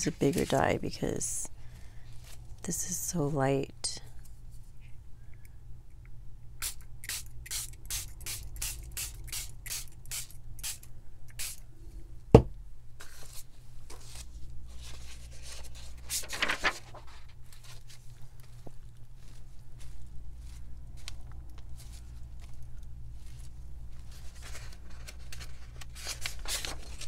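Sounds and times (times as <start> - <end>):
spray bottle hissing sprays: 6.6 - 11.6.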